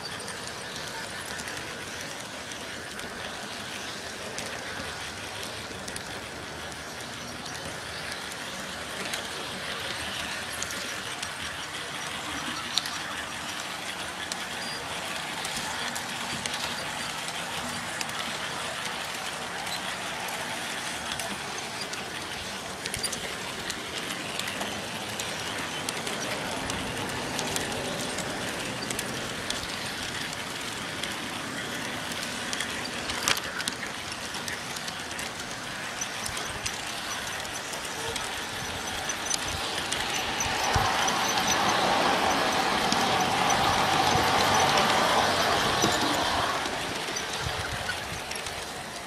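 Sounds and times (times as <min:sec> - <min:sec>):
model train rolling rumble: 0:00.0 - 0:49.0
track clicks: 0:00.0 - 0:49.0.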